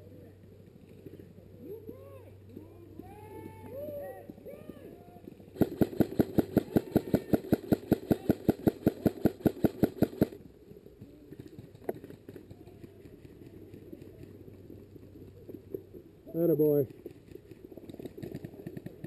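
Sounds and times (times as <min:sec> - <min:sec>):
airsoft rifle firing shots: 0:05.6 - 0:10.4.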